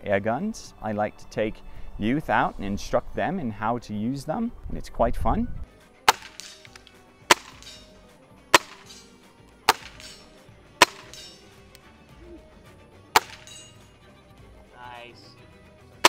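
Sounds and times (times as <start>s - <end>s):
air rifle shots: 6.1s - 7.9s, 8.5s - 11.5s, 13.2s - 13.7s.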